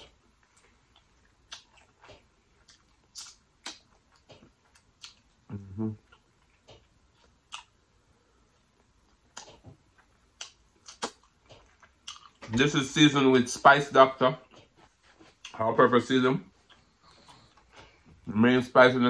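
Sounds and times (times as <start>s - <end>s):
mouth clicks and lip smacks: 0.5s - 5.4s, 6.0s - 7.8s, 9.2s - 12.6s
person humming: 5.5s - 6.0s.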